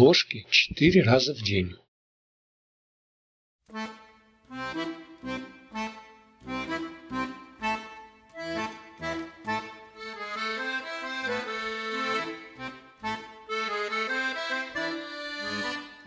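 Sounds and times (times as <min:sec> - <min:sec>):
accordion background music: 0:03.7 - 0:16.0.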